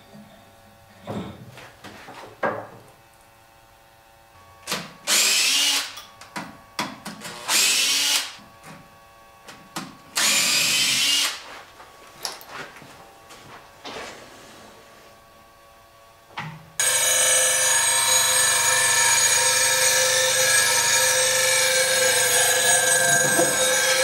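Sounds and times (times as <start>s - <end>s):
cordless drill whining: 10.2s - 11.4s, 16.8s - 24.0s
lathe humming: 16.8s - 24.0s.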